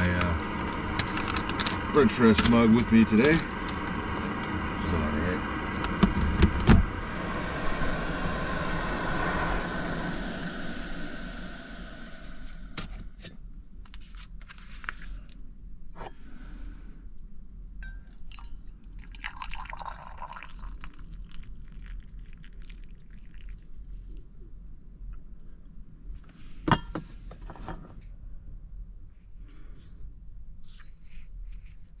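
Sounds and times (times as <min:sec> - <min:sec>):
hot water pouring into mug: 0:00.0 - 0:12.8, 0:18.1 - 0:23.8.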